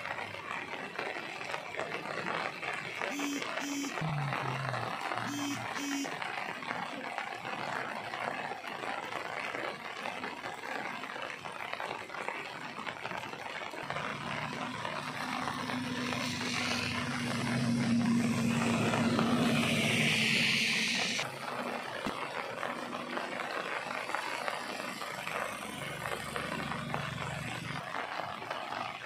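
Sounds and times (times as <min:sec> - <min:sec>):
rain hissing on water: 0:00.0 - 0:29.0
low engine-like drone: 0:03.1 - 0:06.1, 0:13.8 - 0:27.9.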